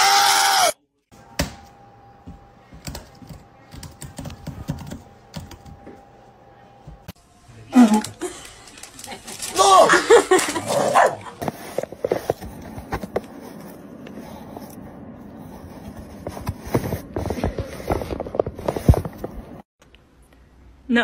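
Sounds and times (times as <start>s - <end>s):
paper bag crinkling: 7.8s - 11.9s.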